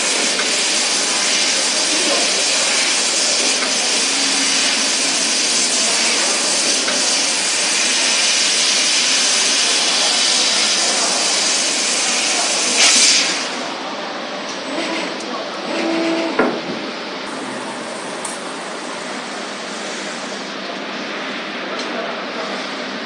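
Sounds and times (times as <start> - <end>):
laser cutter gas hiss: 0.0 - 13.8, 17.3 - 20.6.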